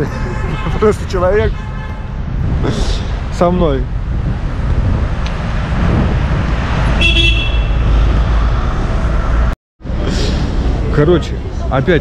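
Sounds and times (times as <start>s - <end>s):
road traffic rumble: 0.0s - 12.0s
car horn toot: 0.2s - 2.1s, 7.0s - 7.9s.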